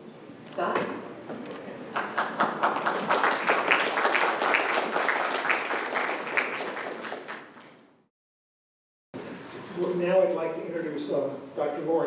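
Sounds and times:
audience applauding: 0:01.9 - 0:07.9.

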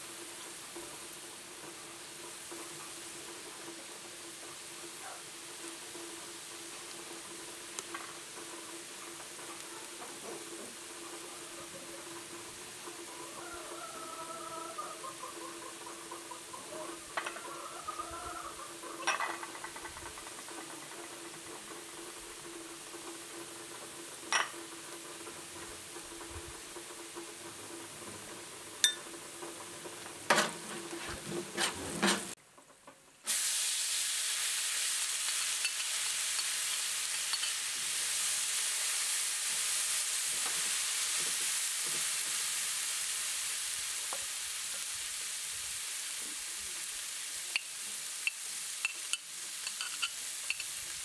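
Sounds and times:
food sizzling in a pan: 0:00.0 - 0:32.4, 0:33.1 - 0:51.0
spoon clinking on bowls: 0:19.0 - 0:19.8, 0:24.3 - 0:24.6, 0:28.8 - 0:29.1, 0:35.6 - 0:36.5, 0:37.3 - 0:37.6, 0:48.3 - 0:50.7
spoon stirring: 0:47.5 - 0:50.8.

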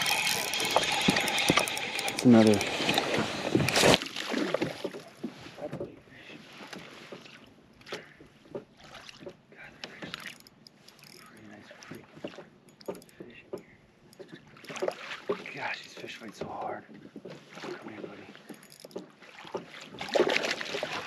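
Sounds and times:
gear knocking on boat: 0:00.0 - 0:05.1
water lapping against kayak hull: 0:00.0 - 0:10.9, 0:11.5 - 0:21.0.

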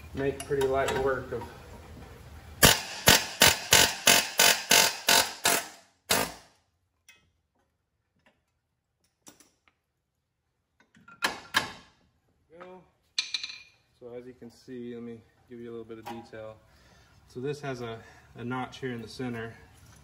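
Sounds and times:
pneumatic air hammer bursts: 0:02.6 - 0:06.5.

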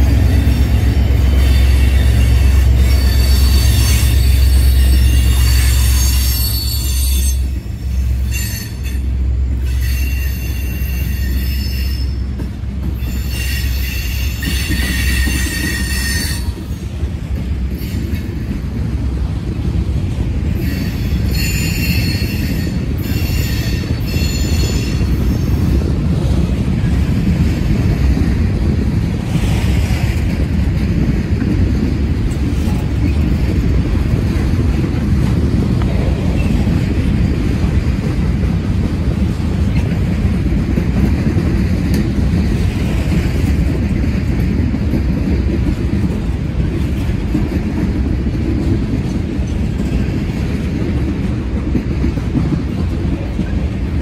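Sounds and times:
train cars rumbling on rails: 0:00.0 - 0:54.0
high-pitched wheel squeal: 0:00.4 - 0:12.2, 0:13.0 - 0:16.7, 0:20.6 - 0:25.5.

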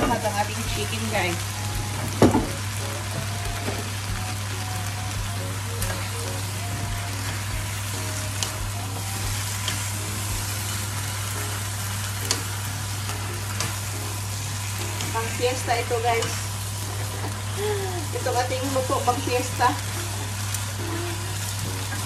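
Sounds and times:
food sizzling in oil: 0:00.0 - 0:22.0
utensils clicking against pan: 0:05.8 - 0:22.0.

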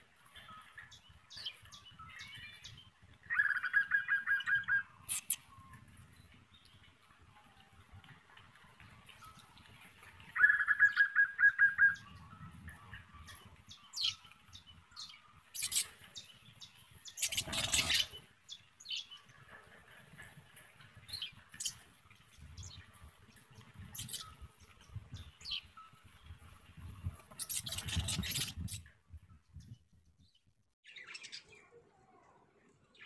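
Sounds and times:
budgerigar chattering: 0:17.2 - 0:18.1.

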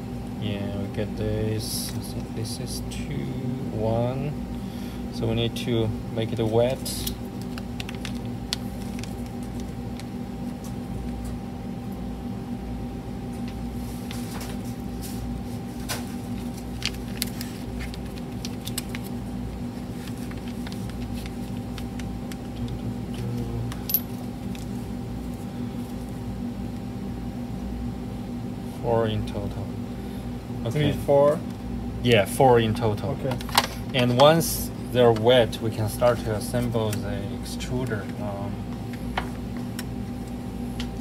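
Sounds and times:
steady background hum: 0:00.0 - 0:41.0.

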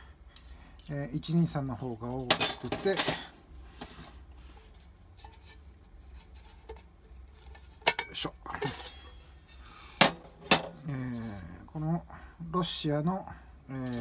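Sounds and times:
metal stove parts clinking: 0:00.4 - 0:03.4, 0:04.6 - 0:11.4, 0:13.8 - 0:14.0.

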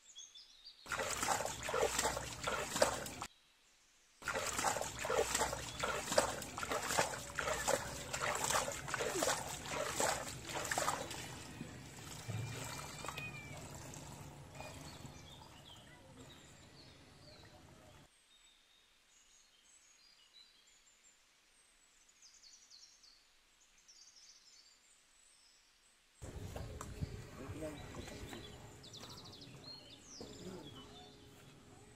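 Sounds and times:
hands splashing in muddy water: 0:00.9 - 0:03.3, 0:04.2 - 0:13.3
faint high chirps: 0:11.5 - 0:17.6.

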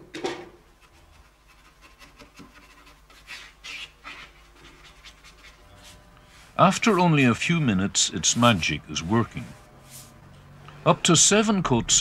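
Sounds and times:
bristle brush strokes on wood: 0:02.6 - 0:10.3.

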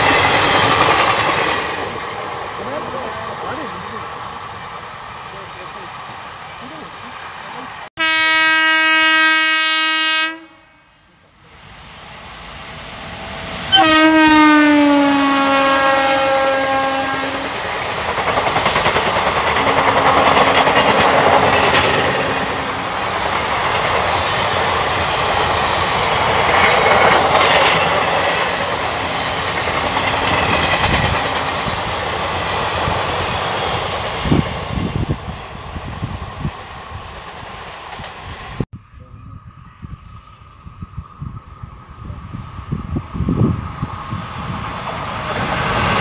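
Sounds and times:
train coaches rushing past: 0:00.0 - 0:08.4, 0:11.3 - 0:38.6, 0:40.0 - 0:46.0
train horn: 0:08.0 - 0:11.1, 0:13.7 - 0:17.6, 0:19.6 - 0:21.0.

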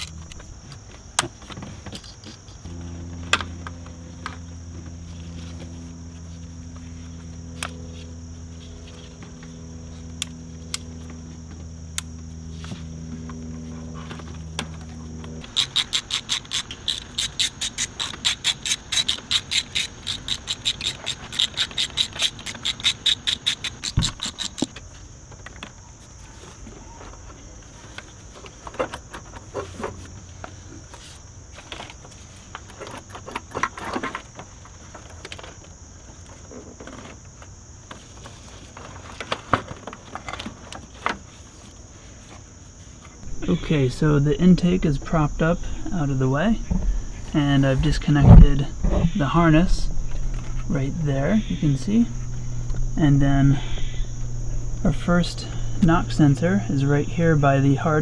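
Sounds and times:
low hum: 0:00.0 - 0:00.8, 0:02.6 - 0:15.6, 0:43.2 - 0:58.0
hand ratchet clicking: 0:15.4 - 0:24.7.

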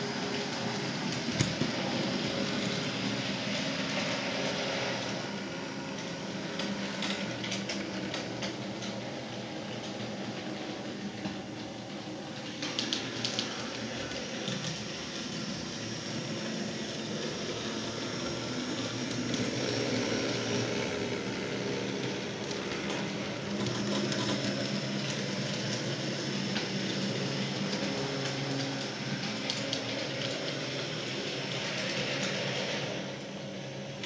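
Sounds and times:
model trams running on track: 0:00.0 - 0:34.0.

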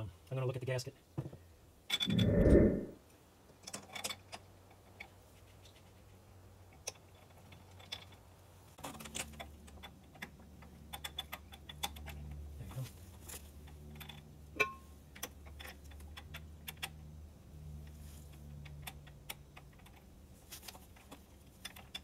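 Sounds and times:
scraping rumble: 0:02.0 - 0:03.0.

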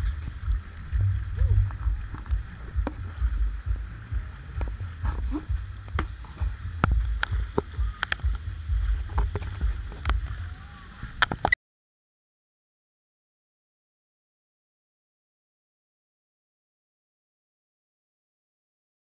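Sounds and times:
faint distant voices: 0:00.0 - 0:11.4
wind rumble on microphone: 0:00.0 - 0:11.6.

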